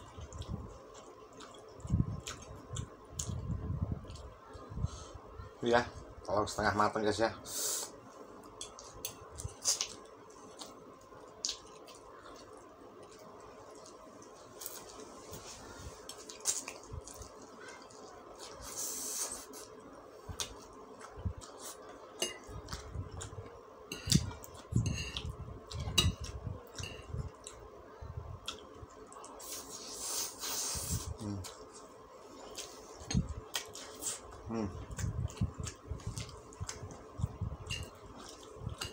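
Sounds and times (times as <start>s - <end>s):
chewing: 0.0s - 4.6s, 8.4s - 27.7s, 28.4s - 38.9s
fork and spoon scraping plate: 24.8s - 25.2s.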